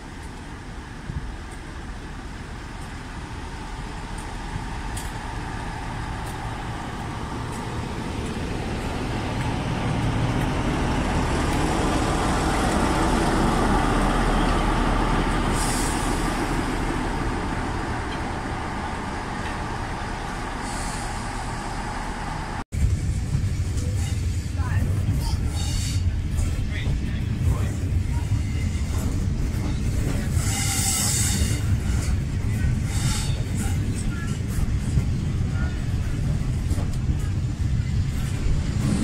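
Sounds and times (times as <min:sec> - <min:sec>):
diesel locomotive engine running: 0:00.0 - 0:39.0
air brake hisses: 0:15.5 - 0:16.4, 0:20.6 - 0:21.6.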